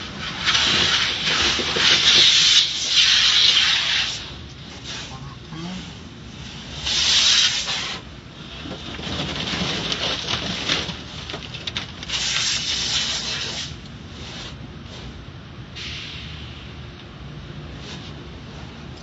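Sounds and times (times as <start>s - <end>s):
car wash water jets spraying: 0.0s - 15.2s
steady low hum: 0.0s - 19.0s.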